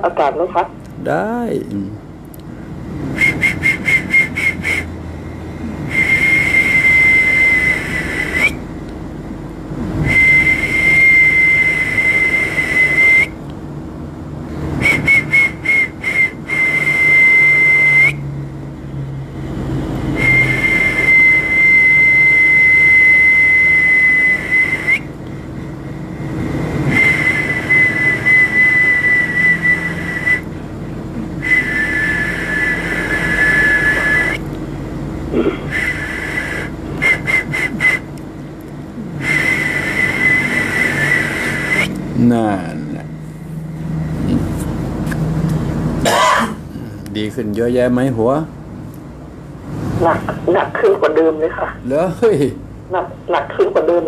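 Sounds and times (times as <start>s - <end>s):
high whistle blasts: 3.2s - 4.9s, 5.9s - 8.6s, 10.0s - 13.4s, 14.8s - 18.3s, 20.2s - 25.1s, 26.8s - 30.5s, 31.4s - 34.4s, 35.7s - 38.1s, 39.2s - 42.0s
short whistle toots: 3.2s - 4.9s, 5.9s - 8.6s, 10.0s - 13.4s, 14.8s - 18.3s, 20.2s - 25.1s, 26.9s - 30.5s, 31.4s - 34.4s, 35.7s - 38.1s, 39.2s - 42.0s.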